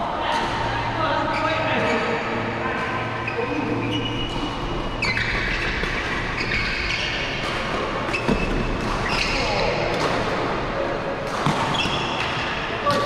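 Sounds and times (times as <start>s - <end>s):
steady background hum: 0.0s - 13.0s
shoes squeaking on court: 3.1s - 9.8s, 11.4s - 13.0s.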